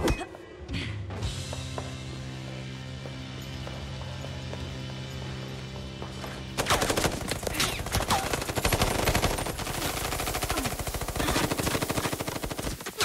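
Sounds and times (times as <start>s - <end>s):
rapid automatic gunfire: 6.6s - 13.0s.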